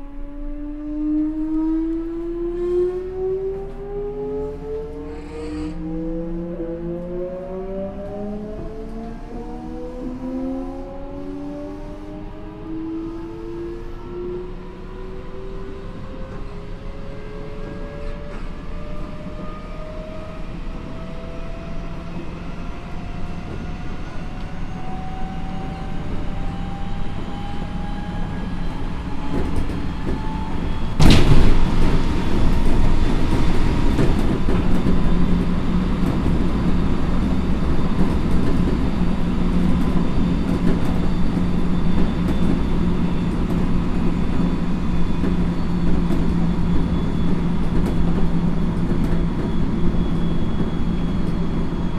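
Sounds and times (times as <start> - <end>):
electric train inverter whine: 0.0 - 51.9
train wheels rumbling: 16.3 - 51.9.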